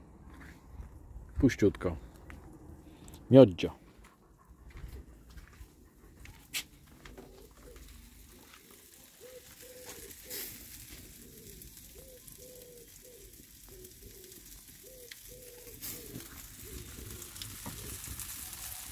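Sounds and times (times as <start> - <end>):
pigeon cooing: 6.3 - 18.9.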